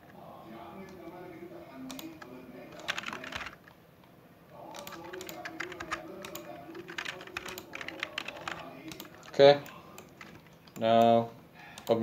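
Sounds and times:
keyboard keys clicking: 1.9 - 3.6, 4.7 - 11.2.

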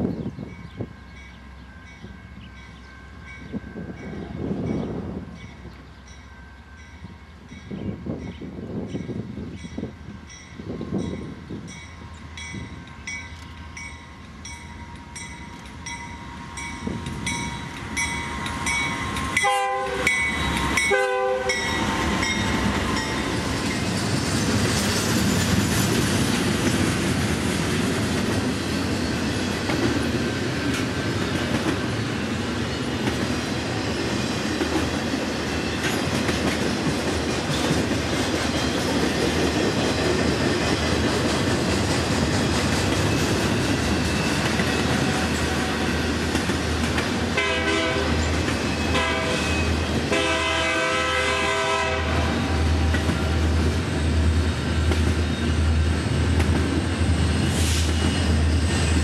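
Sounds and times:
freight train rumble and clatter: 0.0 - 59.0
locomotive horn blasts: 19.4 - 21.8, 47.4 - 48.2, 48.9 - 52.7.

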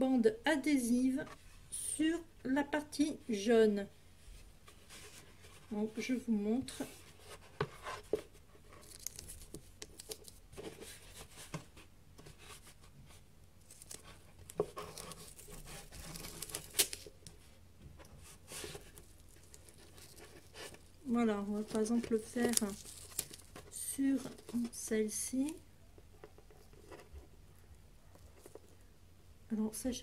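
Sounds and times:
cardboard rustling: 4.4 - 27.5.

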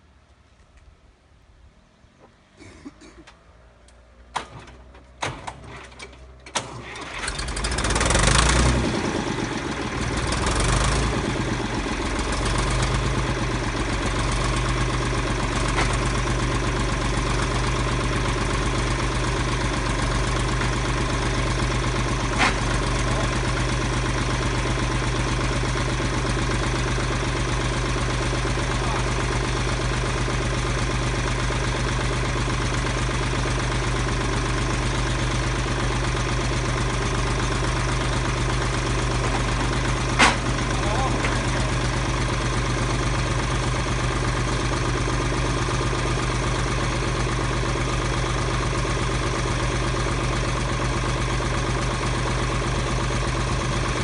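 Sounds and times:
tractor engine starting and idling: 3.0 - 54.0.

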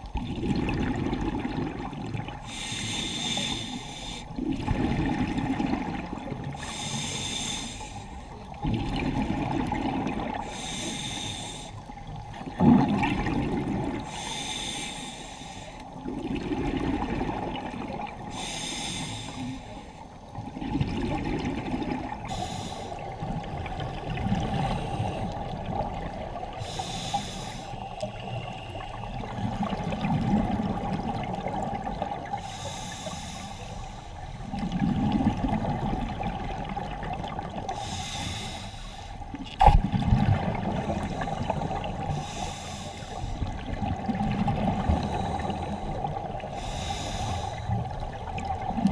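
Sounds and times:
exhaled air bubbling: 0.0 - 7.6, 8.4 - 11.2, 11.8 - 14.8, 15.8 - 38.6, 39.2 - 48.9
diver breathing through regulator: 2.4 - 4.3, 6.6 - 8.4, 10.4 - 11.9, 14.0 - 15.9, 18.3 - 20.0, 22.2 - 23.2, 26.6 - 29.1, 32.4 - 34.4, 37.7 - 39.3, 40.8 - 43.6, 44.8 - 48.0.

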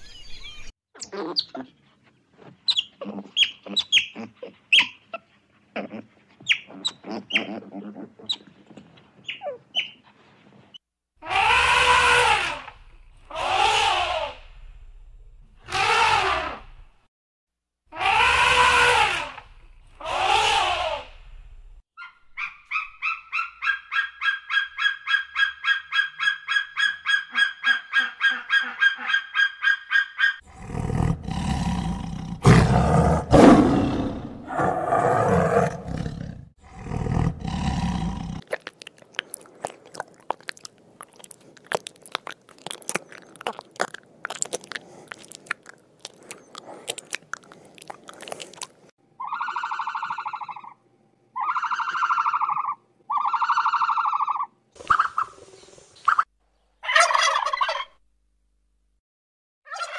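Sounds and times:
tiger roaring and growling: 30.4 - 38.5.

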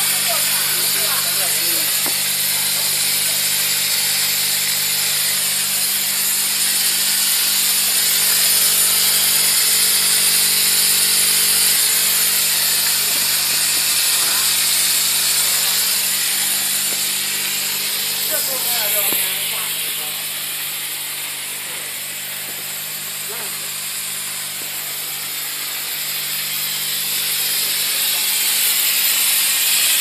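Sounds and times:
steam cleaner hissing: 0.0 - 30.0
low motor hum: 7.1 - 25.1.

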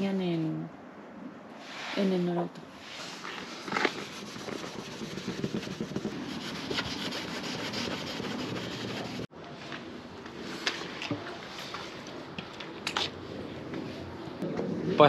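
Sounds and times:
cloth rubbing on metal panel: 2.8 - 9.3.

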